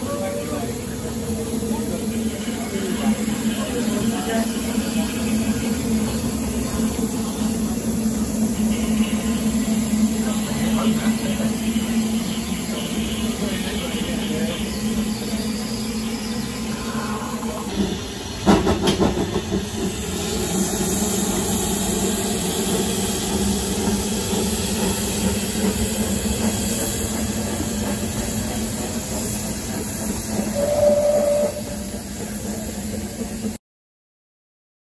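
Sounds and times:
locomotive moving over track: 0.0s - 33.6s
steam hissing: 0.0s - 33.6s
short whistle-like note: 30.5s - 31.8s.

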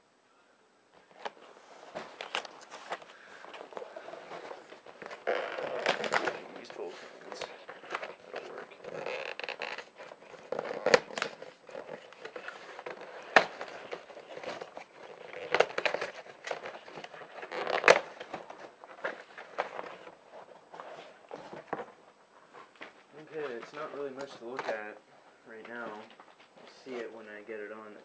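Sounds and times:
cardboard box crackling and tearing: 3.7s - 18.3s.

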